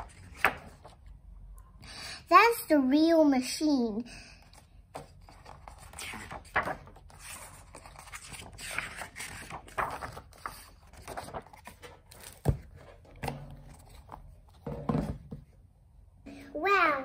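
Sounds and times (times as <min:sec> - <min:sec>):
book pages turning: 0:00.0 - 0:01.2, 0:04.5 - 0:14.7
paper rustling: 0:00.0 - 0:01.2, 0:04.5 - 0:14.7.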